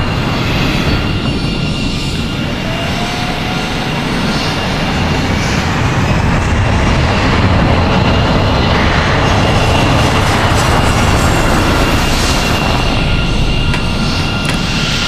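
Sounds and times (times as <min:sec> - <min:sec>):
jet engine rumble: 0:00.0 - 0:15.0
faint whine: 0:08.0 - 0:15.0.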